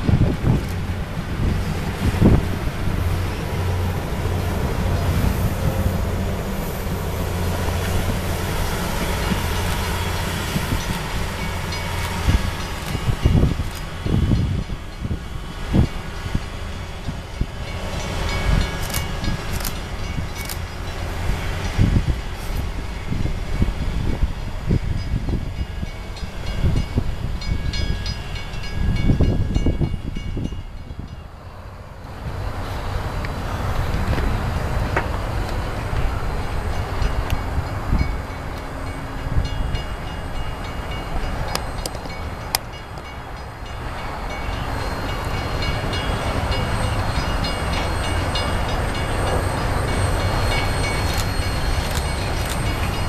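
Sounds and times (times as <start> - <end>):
diesel engines humming: 0.0 - 28.6, 30.9 - 53.0
train wheels on rails: 0.0 - 53.0
faint high ringing tones: 38.0 - 53.0.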